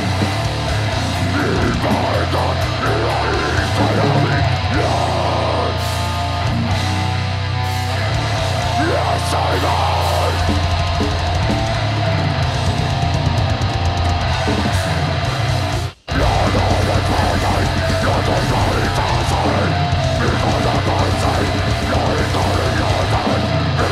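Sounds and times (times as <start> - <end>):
heavy metal band playing: 0.0 - 23.9
vocalist screaming: 1.0 - 6.4, 8.1 - 13.2, 16.1 - 23.9.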